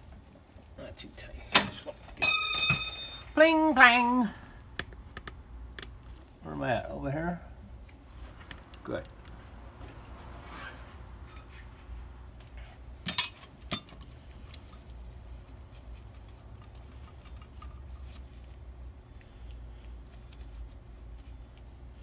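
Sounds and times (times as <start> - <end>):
low steady hum: 0.0 - 22.0
metal clanks: 1.4 - 3.4, 13.0 - 14.1.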